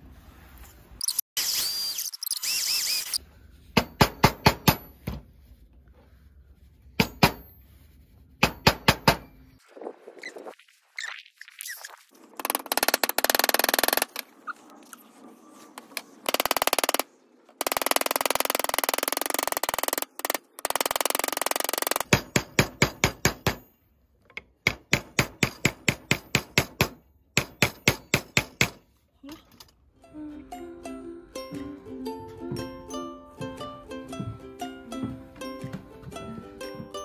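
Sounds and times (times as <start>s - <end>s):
hammer tapping on metal: 7.0s - 7.5s, 8.4s - 9.3s.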